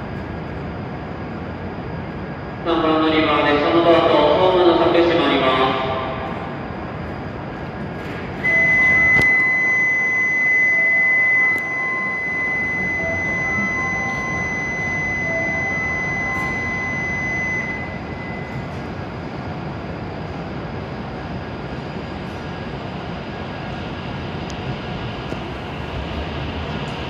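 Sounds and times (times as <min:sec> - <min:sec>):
train and station hum: 0:00.0 - 0:27.0
high electronic buzzer tone: 0:08.4 - 0:18.9.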